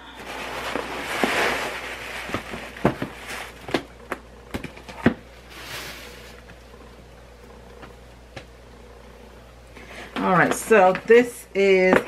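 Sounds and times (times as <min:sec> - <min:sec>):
paper rustling: 0:00.1 - 0:03.8.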